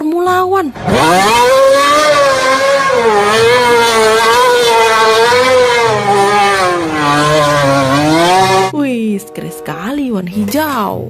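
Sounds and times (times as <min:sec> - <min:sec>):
racing car engine at high revs: 0:00.7 - 0:08.8.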